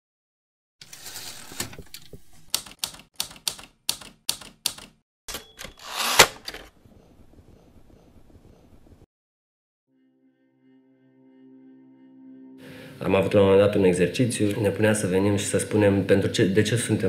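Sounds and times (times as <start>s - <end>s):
paper rustle: 0.8s - 2.5s
typewriter carriage return: 0.8s - 6.7s
typewriter key strikes: 2.5s - 5.8s.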